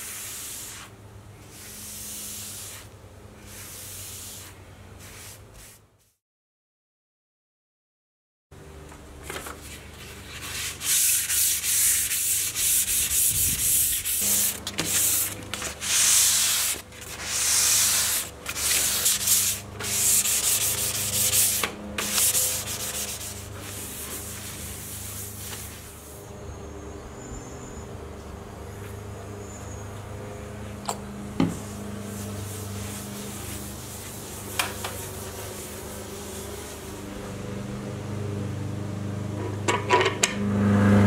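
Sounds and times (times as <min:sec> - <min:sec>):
sandpaper rubbing on wood: 0:00.0 - 0:06.2, 0:09.6 - 0:26.2, 0:31.6 - 0:37.1.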